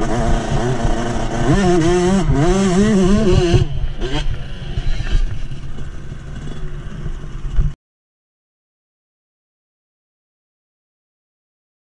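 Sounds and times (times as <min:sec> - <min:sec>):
dirt bike engine: 0:00.0 - 0:07.8.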